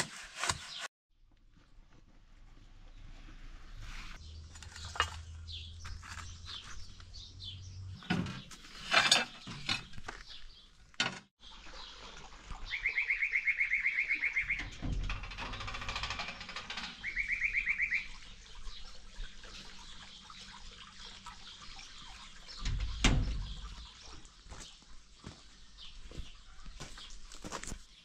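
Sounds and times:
sharp knocks and scrapes: 0.0s - 0.9s, 3.8s - 7.1s, 8.0s - 10.4s
small birds chirping: 11.4s - 14.8s, 16.7s - 28.0s
fast even bird trill: 17.0s - 18.2s.

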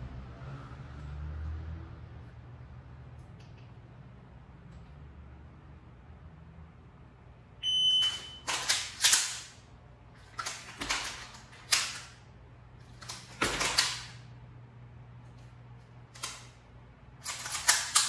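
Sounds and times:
shot timer beep: 7.6s - 8.5s
pistol mechanical clicks: 8.0s - 9.6s, 10.2s - 12.2s, 16.1s - 16.6s, 17.2s - 18.0s.

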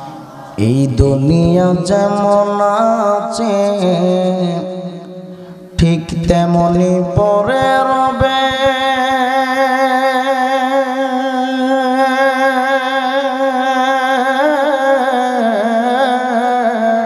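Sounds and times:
man singing a long held note: 0.0s - 17.0s.

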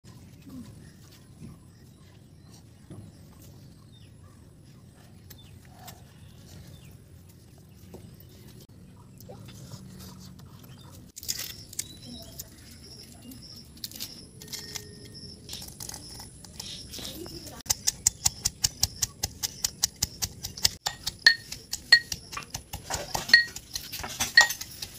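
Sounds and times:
knife peeling an onion: 9.7s - 24.9s
faint bird chirps: 10.7s - 22.2s
leaf wrapping rustling and crinkling: 11.1s - 17.7s.

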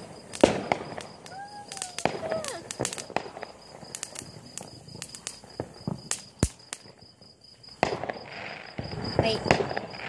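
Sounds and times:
rush of firework noise: 0.0s - 7.1s
crickets chirping: 0.0s - 10.0s
firework pops and crackles: 0.0s - 10.0s.

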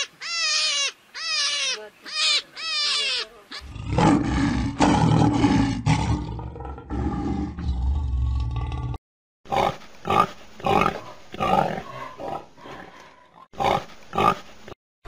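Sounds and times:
lion roaring: 3.6s - 12.9s.

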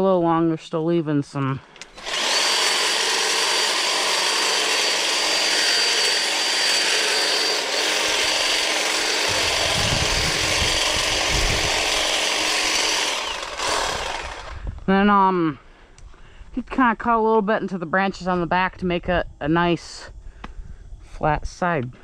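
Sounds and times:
hedge trimmer cutting branches: 1.8s - 14.7s
low rumble: 9.2s - 14.9s.

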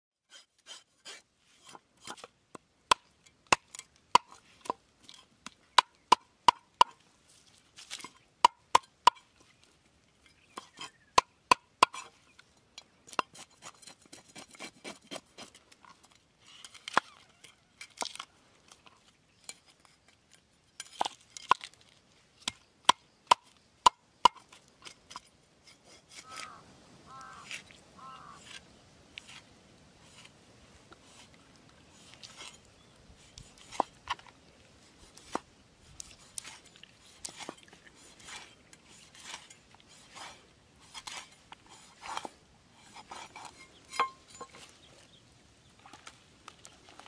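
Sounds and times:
knife scraping fish scales: 0.3s - 2.3s, 10.3s - 11.1s, 13.1s - 18.2s, 24.4s - 30.4s, 31.0s - 34.3s, 35.0s - 44.8s.

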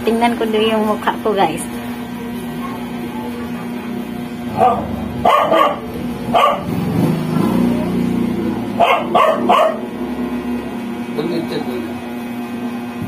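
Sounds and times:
low background hum: 0.0s - 9.9s
dog barking: 4.5s - 6.8s, 8.8s - 9.9s.

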